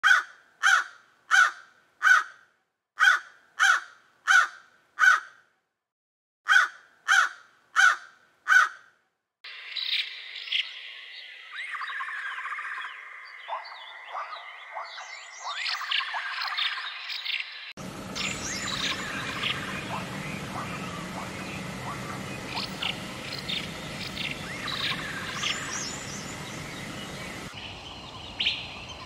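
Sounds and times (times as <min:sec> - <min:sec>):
small birds chirping: 0:09.5 - 0:29.0
bird giving loud calls: 0:18.1 - 0:27.6.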